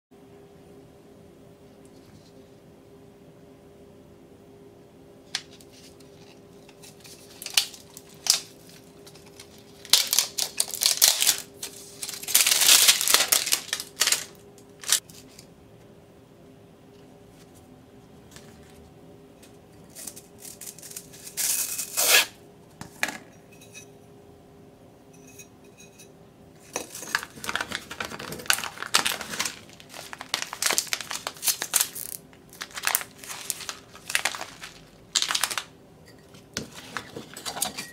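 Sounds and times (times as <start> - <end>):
plastic packet crinkling: 6.7 - 15.3, 26.8 - 35.7
shrink-wrap tearing: 6.7 - 15.3, 19.9 - 22.4, 26.9 - 35.7.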